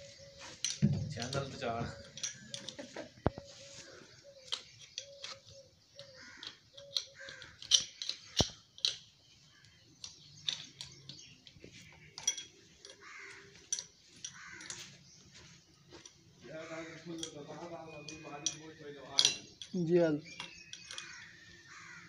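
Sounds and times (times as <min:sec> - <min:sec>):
spanner clinking against bolts: 0:00.2 - 0:03.4, 0:04.2 - 0:09.2, 0:09.9 - 0:14.9, 0:17.0 - 0:22.0.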